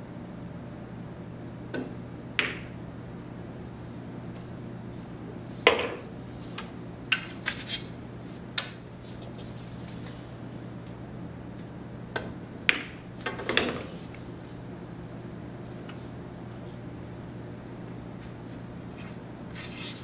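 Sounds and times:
steady low hum: 0.0 - 20.0
cue striking ball: 1.7 - 2.8, 5.7 - 6.1, 12.2 - 13.9
pool balls clacking: 1.7 - 2.8, 5.7 - 7.7, 12.1 - 14.0.

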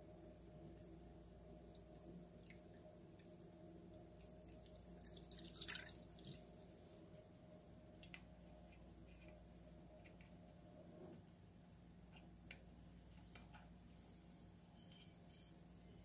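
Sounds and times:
low steady hum: 0.0 - 16.0
small drips: 1.2 - 10.3
liquid trickling and splashing: 4.1 - 6.7.

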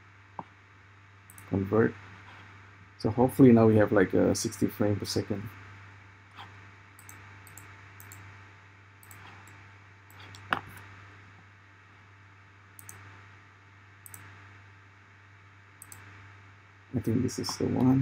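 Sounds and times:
steady low hum: 0.0 - 18.0
computer mouse and keyboard clicks: 9.0 - 10.8, 12.8 - 13.0, 15.8 - 16.0.

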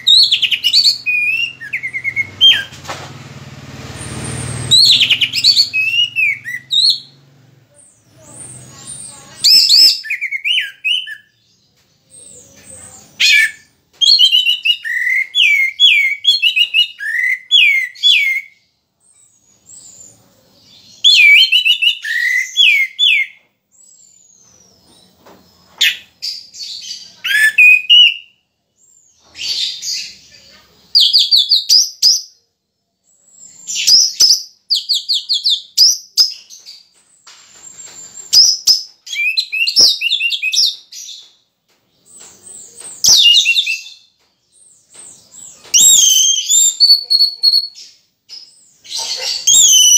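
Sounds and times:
thrush singing whistled notes: 0.0 - 2.8, 3.9 - 7.2, 45.7 - 47.8, 49.4 - 49.9.

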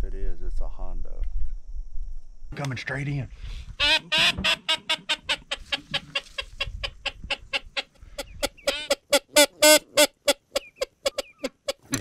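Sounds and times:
duck call peeping: 3.8 - 11.8.

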